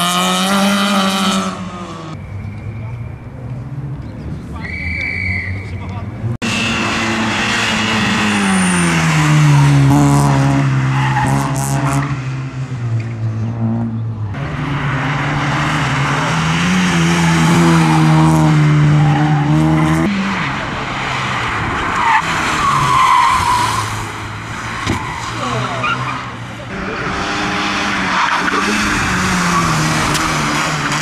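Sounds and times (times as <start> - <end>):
rally car engines revving: 0.0 - 31.0
tyre squeal: 4.6 - 5.8.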